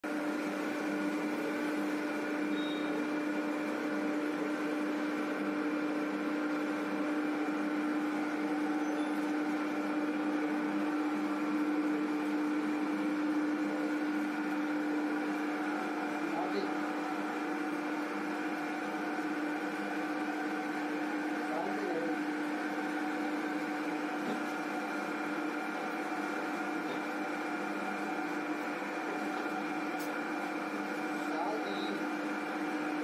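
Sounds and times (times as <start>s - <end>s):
oil press machine hum: 0.0s - 33.0s.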